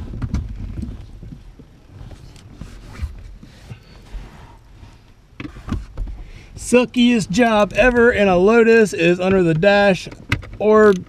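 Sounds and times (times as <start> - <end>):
low handling rumble: 0.0 - 11.0.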